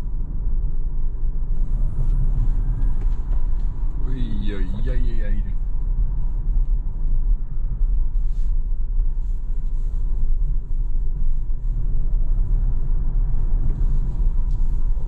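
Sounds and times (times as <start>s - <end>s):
tyre and road noise: 0.0s - 15.0s.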